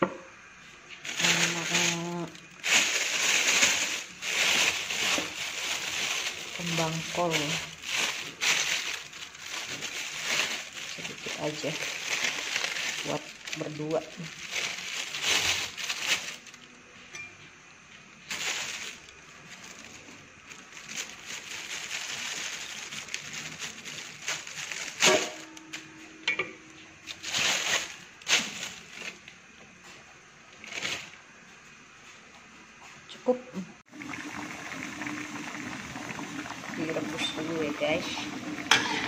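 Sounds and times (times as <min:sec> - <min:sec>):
plastic bag rustling: 0:00.6 - 0:17.1, 0:18.1 - 0:32.2, 0:34.0 - 0:39.0.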